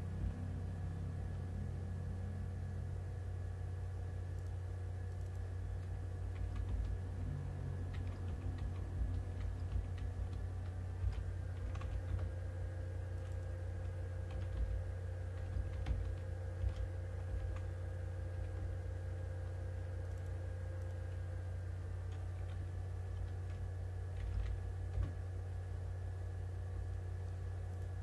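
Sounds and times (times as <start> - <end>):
low electrical hum: 0.0 - 28.0
keyboard keys tapping: 5.2 - 7.0, 7.8 - 12.4, 13.1 - 18.8, 22.1 - 25.2.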